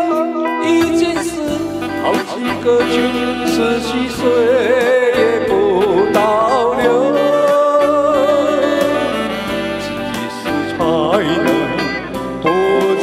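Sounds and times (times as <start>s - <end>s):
amplified backing music: 0.0s - 13.0s
man singing into a microphone: 0.0s - 13.0s.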